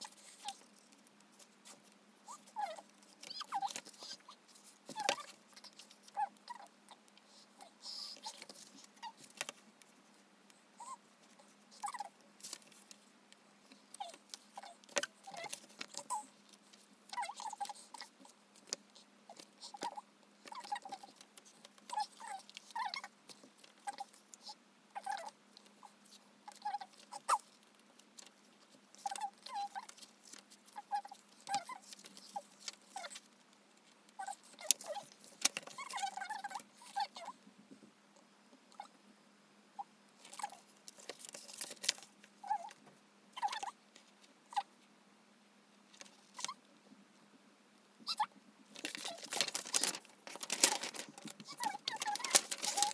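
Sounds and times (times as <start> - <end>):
photobook pages being turned: 40.2 - 42.6, 48.7 - 52.9.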